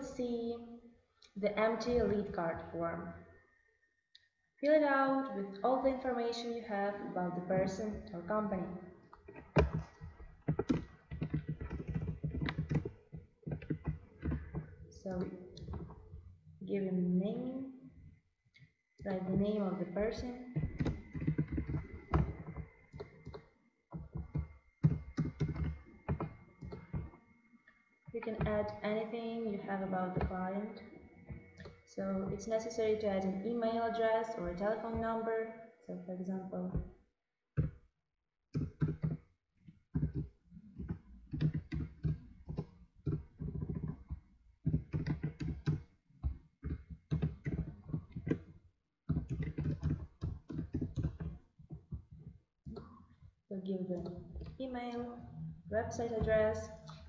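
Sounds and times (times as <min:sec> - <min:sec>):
computer keyboard typing: 0:09.5 - 0:15.9, 0:19.1 - 0:27.1, 0:38.6 - 0:39.2, 0:40.0 - 0:48.4, 0:49.1 - 0:51.4
keyboard keystrokes: 0:24.1 - 0:27.0.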